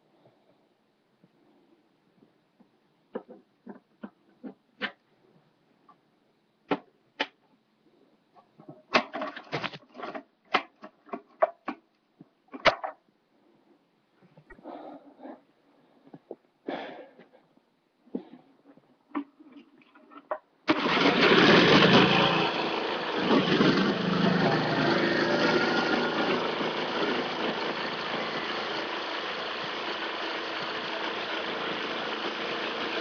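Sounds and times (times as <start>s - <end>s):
knocks and handling scrapes: 2.2s - 5.1s, 8.4s - 13.1s
small engine running: 20.7s - 33.0s.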